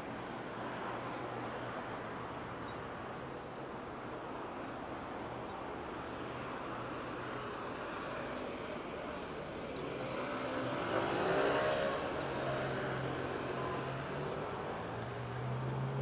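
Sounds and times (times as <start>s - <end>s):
low traffic hum: 0.0s - 16.0s
car passing by: 6.4s - 16.0s.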